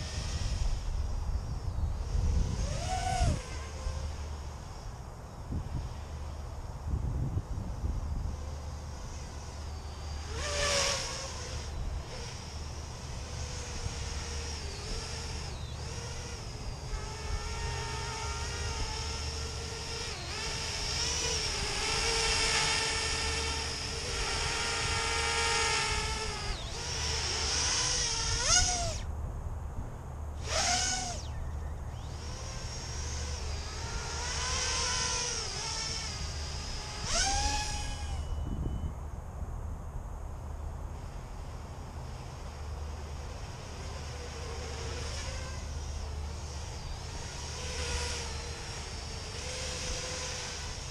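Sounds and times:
drone motors whining: 0:00.0 - 0:29.2, 0:29.9 - 0:50.9
sharp rising motor whines: 0:00.0 - 0:29.2, 0:29.9 - 0:39.2, 0:40.5 - 0:50.9
steady low rumble: 0:29.0 - 0:30.5.

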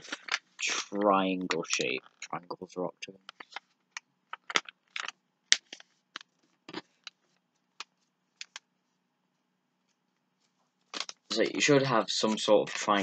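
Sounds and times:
paper folding and creasing: 0:12.2 - 0:13.0.

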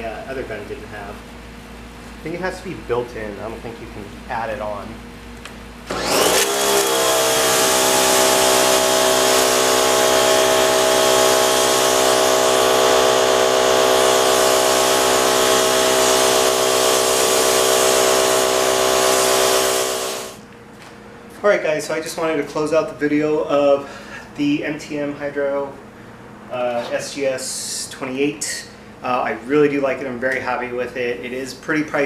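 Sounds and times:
pressure washer motor hum: 0:05.8 - 0:20.4
spray jet hissing: 0:08.0 - 0:20.4.

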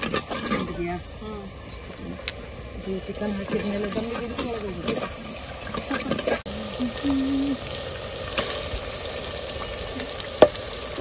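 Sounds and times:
chicken sizzling in a pot: 0:05.8 - 0:11.0.

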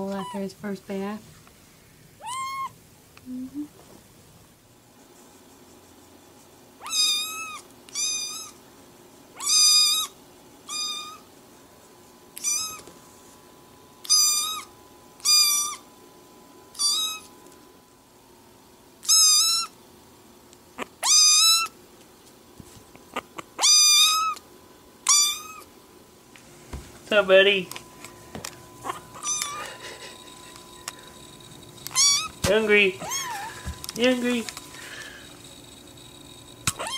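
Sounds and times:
kitten meowing: 0:02.2 - 0:02.7, 0:06.8 - 0:08.6, 0:09.4 - 0:10.1, 0:10.7 - 0:11.2, 0:12.4 - 0:12.8, 0:14.0 - 0:15.8, 0:16.8 - 0:17.3, 0:19.0 - 0:19.7, 0:21.0 - 0:21.7, 0:23.6 - 0:24.4, 0:25.1 - 0:25.7, 0:28.8 - 0:29.8, 0:31.9 - 0:32.4, 0:33.0 - 0:33.6, 0:36.7 - 0:36.9.

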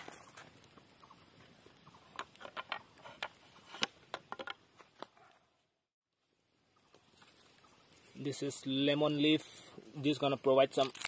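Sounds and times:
fire popping: 0:00.0 - 0:05.1, 0:06.7 - 0:11.0
wood fire crackling: 0:00.0 - 0:05.1, 0:06.2 - 0:11.0.

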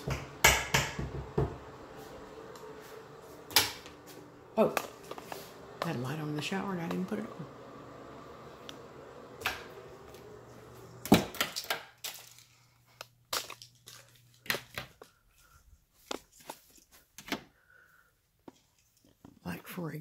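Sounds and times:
low steady hum: 0:00.0 - 0:14.4.

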